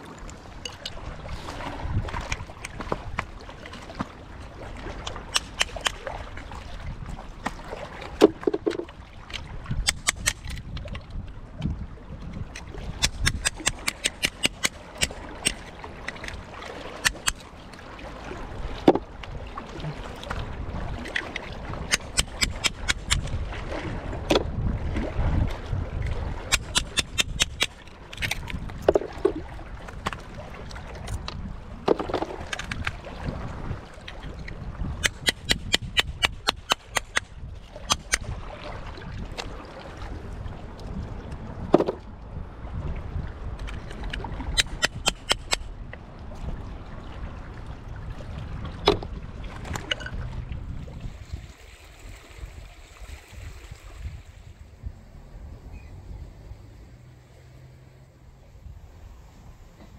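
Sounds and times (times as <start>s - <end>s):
small waves washing among rocks: 0.0s - 42.1s, 42.7s - 54.8s
wind on microphone: 0.0s - 57.3s, 58.2s - 59.9s
sharp clicks and crackles: 9.9s - 10.6s, 12.6s - 16.4s, 21.1s - 23.3s, 26.5s - 28.6s, 35.0s - 37.3s.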